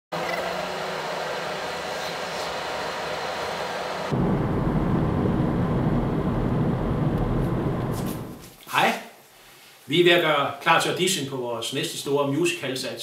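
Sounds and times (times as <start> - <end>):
car driving rumble: 4.0 - 8.4.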